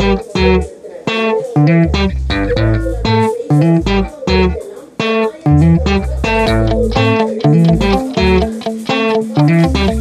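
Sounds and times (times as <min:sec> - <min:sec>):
deep bass line: 0:00.0 - 0:00.6, 0:01.6 - 0:04.6, 0:05.5 - 0:08.5
plucked guitar-like notes: 0:00.0 - 0:10.0.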